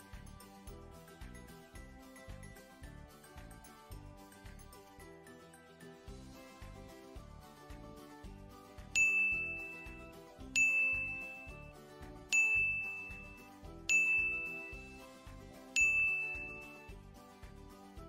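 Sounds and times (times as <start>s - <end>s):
soft background music with beat: 0.0s - 18.0s
notification bell dings: 9.0s - 11.7s, 12.3s - 14.9s, 15.8s - 16.9s.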